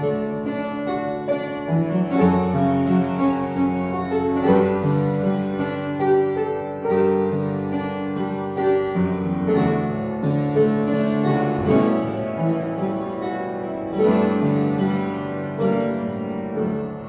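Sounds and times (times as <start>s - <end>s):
upright piano playing chords: 0.0s - 17.0s.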